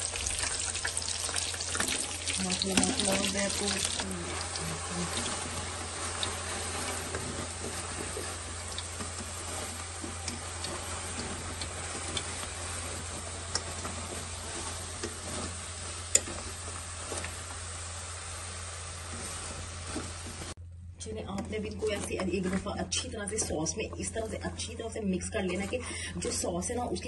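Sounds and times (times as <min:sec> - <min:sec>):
sauce sizzling in pot: 0:00.0 - 0:20.6
spatula scraping and tapping pot: 0:02.6 - 0:17.5.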